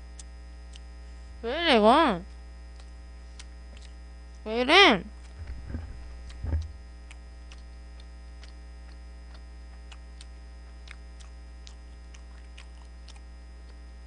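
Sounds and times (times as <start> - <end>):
low electrical mains hum: 0.0 - 14.0.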